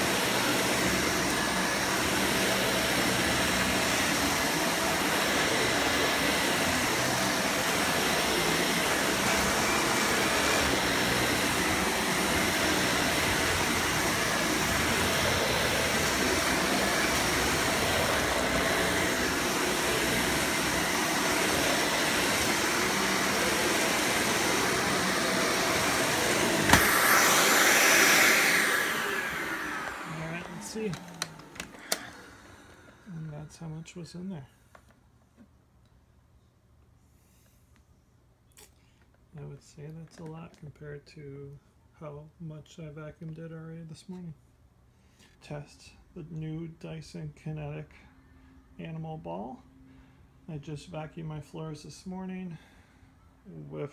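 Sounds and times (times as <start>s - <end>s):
vacuum cleaner click: 0.0s - 33.0s
vacuum cleaner running: 0.0s - 34.0s.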